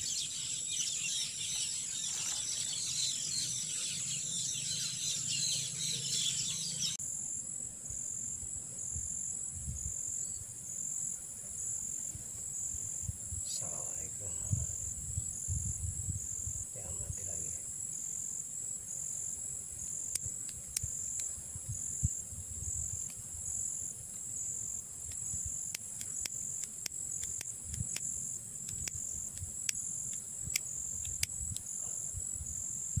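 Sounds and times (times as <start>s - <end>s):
crickets chirping: 0.0s - 33.0s
wind rumble on microphone: 8.9s - 10.2s, 12.2s - 17.6s, 20.6s - 23.6s, 30.4s - 33.0s
sharp clicks: 20.1s - 21.3s, 25.1s - 31.7s.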